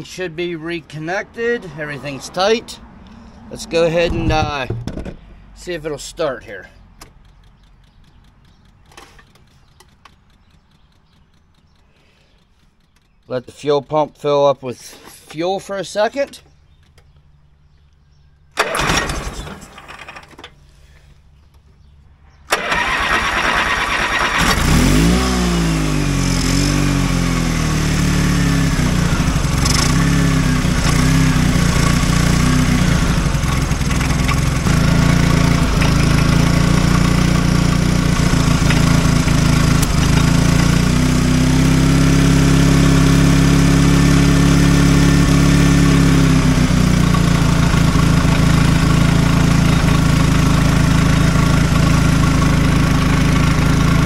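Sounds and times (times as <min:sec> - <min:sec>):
riding mower engine running: 0:00.0 - 0:14.0, 0:16.7 - 0:54.0
riding mower engine cranking: 0:07.0 - 0:13.9, 0:18.5 - 0:20.8, 0:22.5 - 0:54.0.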